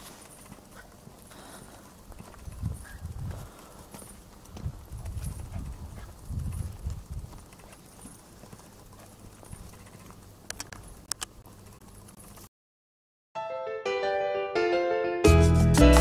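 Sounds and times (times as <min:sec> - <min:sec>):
footsteps on paved street: 0:00.0 - 0:11.0
sharp clicks: 0:09.6 - 0:12.5.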